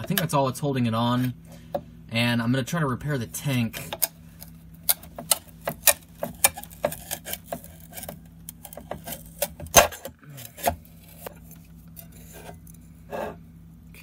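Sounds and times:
glue cracking: 3.8s - 12.1s.

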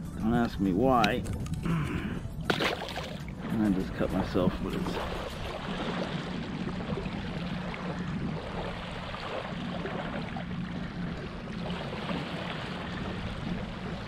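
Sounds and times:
small waves lapping: 1.4s - 14.0s
steady low hum: 3.2s - 14.0s.

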